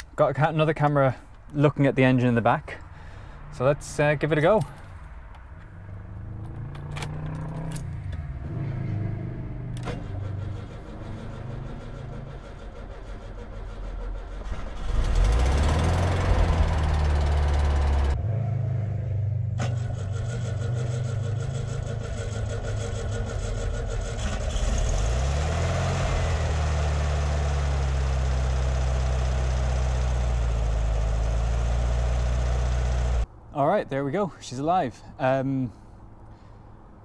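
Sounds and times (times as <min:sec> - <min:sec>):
car engine running with misfire: 0:09.8 - 0:18.2, 0:19.6 - 0:33.2
starter cranking engine: 0:09.8 - 0:18.2, 0:19.6 - 0:25.6.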